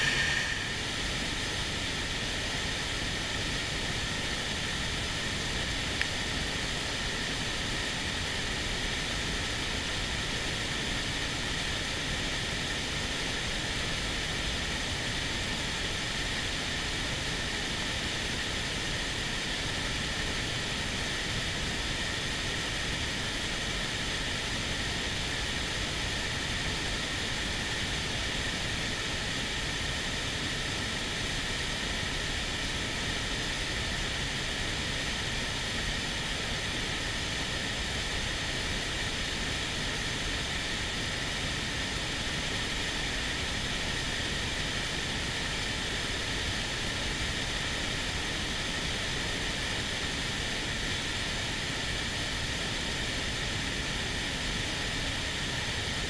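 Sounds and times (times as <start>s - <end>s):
fast-flowing river rushing: 0.0s - 1.7s.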